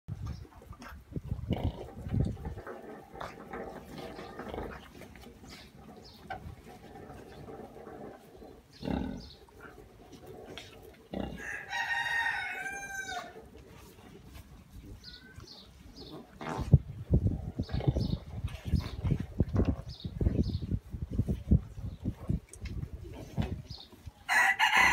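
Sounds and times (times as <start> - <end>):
pig grunting: 1.4 - 11.4, 16.0 - 16.8, 17.5 - 19.0
rooster crowing: 11.4 - 13.4, 24.3 - 24.9.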